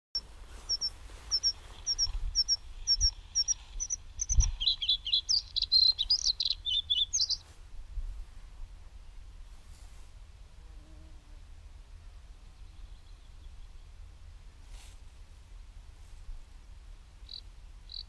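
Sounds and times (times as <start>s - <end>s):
songbird warbling song: 0.2s - 7.5s, 12.4s - 14.0s, 17.2s - 18.0s
songbird double chirp: 0.6s - 7.4s.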